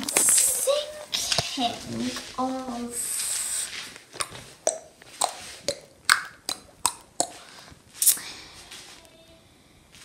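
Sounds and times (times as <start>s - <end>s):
footsteps on tiled floor: 0.0s - 5.8s.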